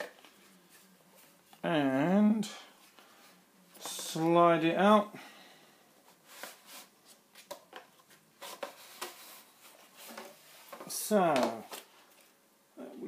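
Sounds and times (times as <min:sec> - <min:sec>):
card scraping and rustling: 0:06.2 - 0:12.3.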